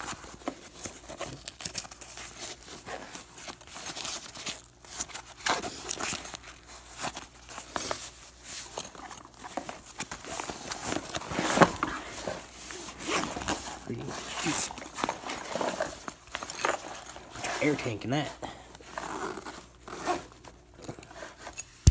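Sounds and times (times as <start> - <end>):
backpack fabric rustling: 0.0 - 21.9.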